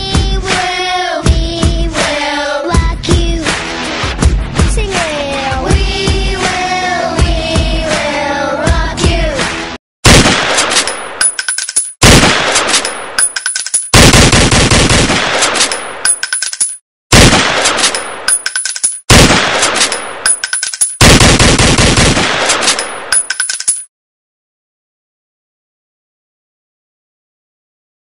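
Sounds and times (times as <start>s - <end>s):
thin metallic ring: 13.2s - 13.9s, 16.1s - 16.8s, 18.3s - 19.0s, 20.3s - 21.0s, 23.1s - 23.9s.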